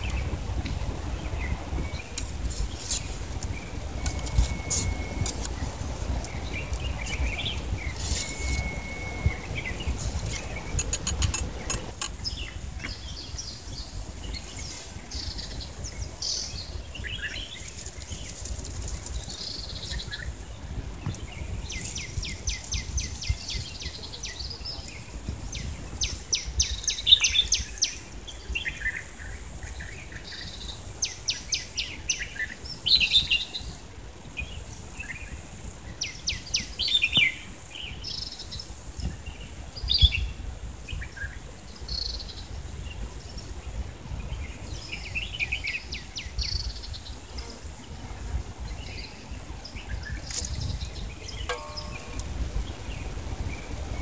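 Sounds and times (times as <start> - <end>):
songbirds chirping: 0.0 - 54.0
bird trills: 4.0 - 5.5, 7.0 - 11.8, 51.3 - 52.4.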